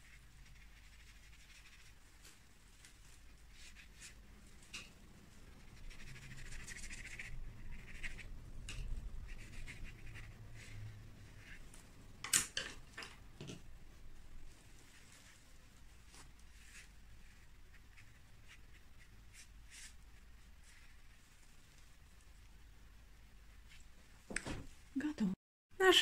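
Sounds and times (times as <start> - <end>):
brush stroking paper: 0.0 - 11.7, 14.4 - 22.4.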